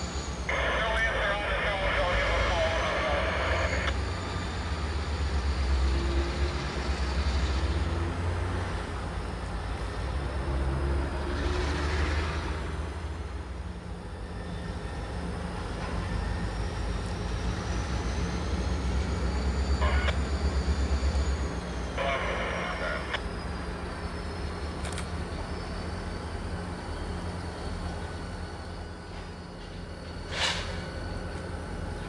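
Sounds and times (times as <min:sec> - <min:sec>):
diesel locomotives rumbling: 0:00.0 - 0:32.0.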